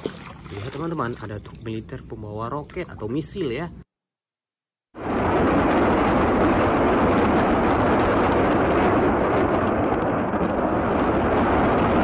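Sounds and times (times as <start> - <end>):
rockets launching with crackling roar: 5.0 - 12.0.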